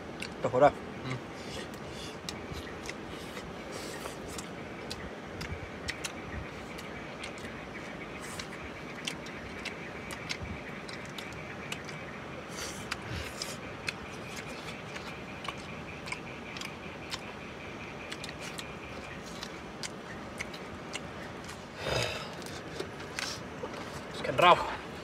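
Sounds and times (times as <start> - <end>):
chewing: 0.0 - 25.0
fingers picking at food: 1.4 - 24.3.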